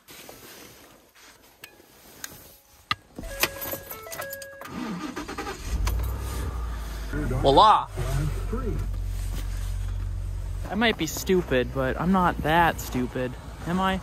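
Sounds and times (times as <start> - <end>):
truck engine starting and running: 3.2 - 14.0.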